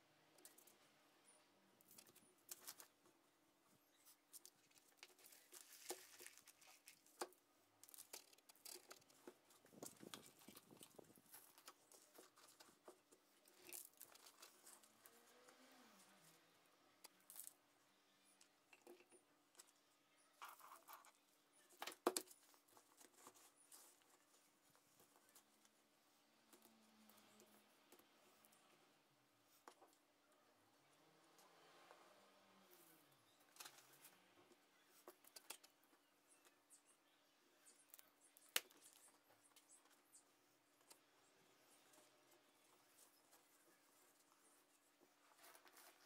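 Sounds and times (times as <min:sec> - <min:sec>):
hands rustling potting soil: 0:03.9 - 0:17.6, 0:37.9 - 0:46.0.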